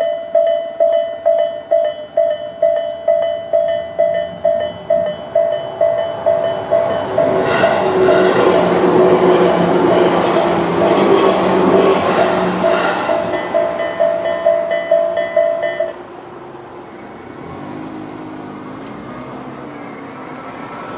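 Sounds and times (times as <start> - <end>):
level crossing warning bell: 0.0 - 16.1
electric train rumbling past: 0.0 - 20.9
car engine revving: 6.1 - 13.4, 17.0 - 20.9.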